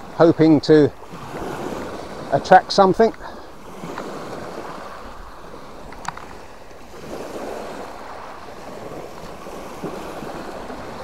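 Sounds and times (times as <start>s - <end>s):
gentle surf washing onto shore: 0.0s - 11.0s
sharp click: 5.9s - 6.4s.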